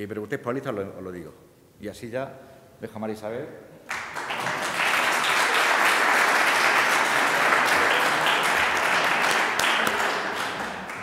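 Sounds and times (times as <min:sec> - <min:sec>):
audience applauding: 0:03.9 - 0:11.0.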